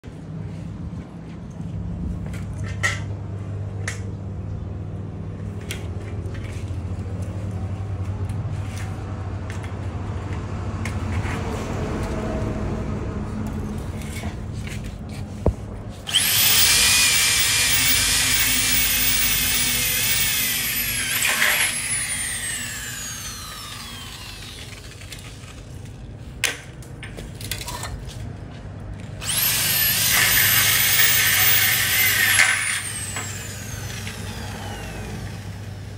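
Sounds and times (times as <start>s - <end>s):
electric drill whining: 16.1s - 25.4s, 29.2s - 35.9s.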